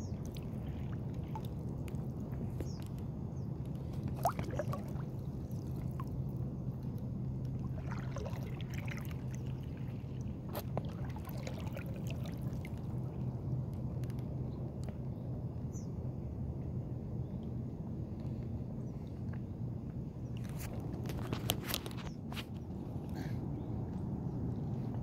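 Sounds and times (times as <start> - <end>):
water lapping against boat: 0.0 - 14.2
steady low rumble: 0.0 - 25.0.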